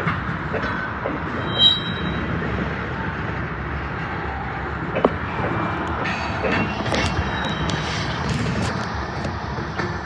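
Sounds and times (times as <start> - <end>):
train wheels rumbling on rail: 0.0 - 10.0
high wheel squeal: 1.4 - 2.4, 6.2 - 8.4.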